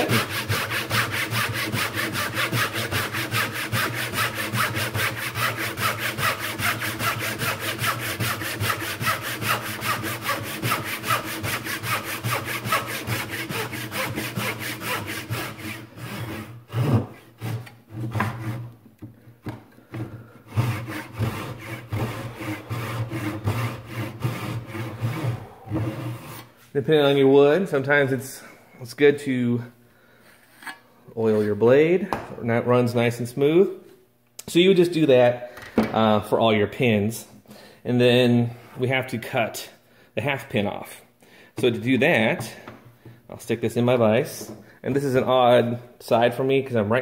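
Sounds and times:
hand saw rasping: 0:00.0 - 0:18.7, 0:19.9 - 0:26.5.

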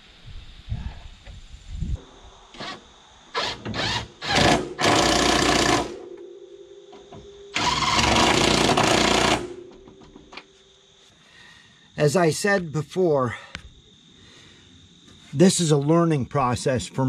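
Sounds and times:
impact wrench running: 0:03.5 - 0:06.0, 0:07.6 - 0:09.6.

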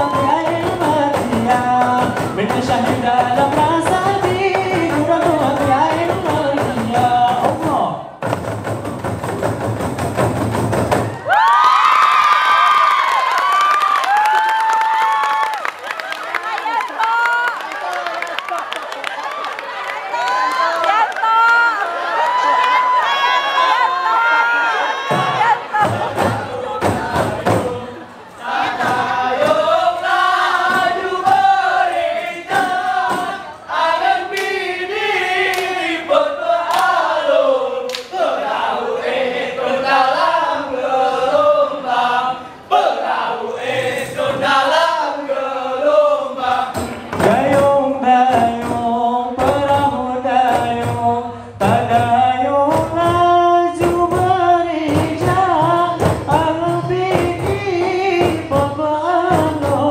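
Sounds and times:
frame drums: 0:00.0 - 0:11.4, 0:25.0 - 0:35.8, 0:46.4 - 0:59.9
men chanting in unison: 0:25.2 - 0:59.9.

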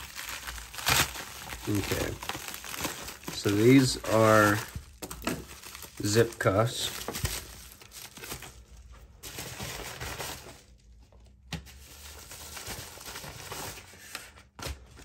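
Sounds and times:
plastic mailer rustling: 0:00.0 - 0:10.8.

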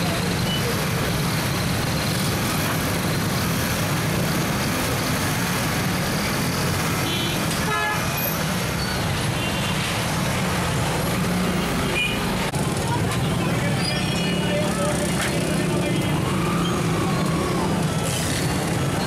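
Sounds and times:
traffic engines idling: 0:00.0 - 0:19.0
vehicle horns tooting: 0:07.0 - 0:08.4.

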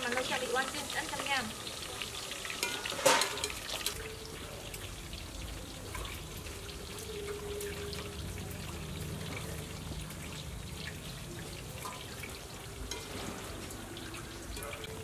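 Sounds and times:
oil sizzling in a wok: 0:00.0 - 0:15.0.

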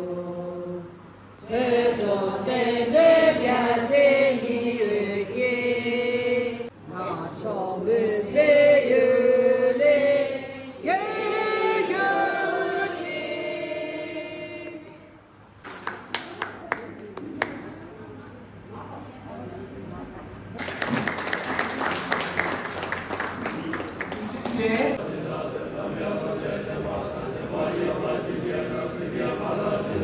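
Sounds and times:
women singing in unison: 0:00.0 - 0:15.2.

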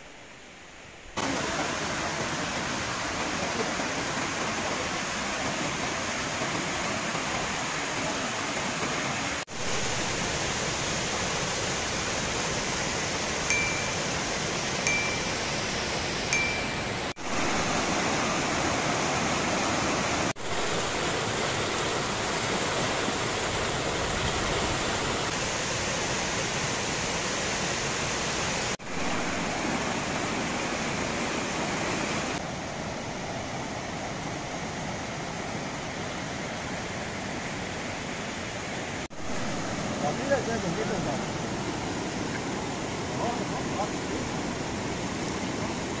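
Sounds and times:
river rushing over rapids: 0:00.3 - 0:46.0.

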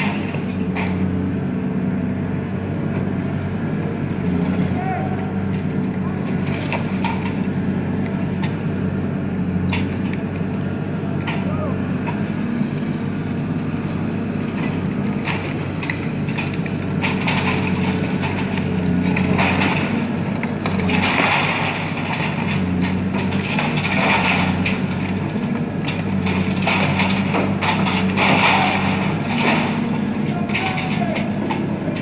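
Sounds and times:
falling rubble: 0:00.0 - 0:01.2, 0:05.3 - 0:08.6, 0:14.2 - 0:32.0
excavator diesel engine running: 0:00.0 - 0:32.0
concrete crunching: 0:09.7 - 0:32.0.

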